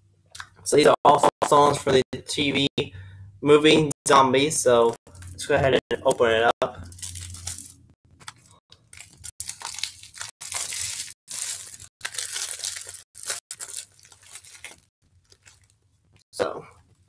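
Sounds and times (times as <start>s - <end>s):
plastic shrink-wrap tearing and crinkling: 6.8s - 15.8s.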